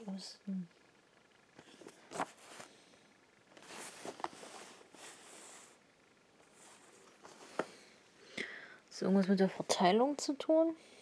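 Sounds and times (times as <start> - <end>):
paper rustling on cardboard: 1.7 - 2.7, 3.6 - 5.8.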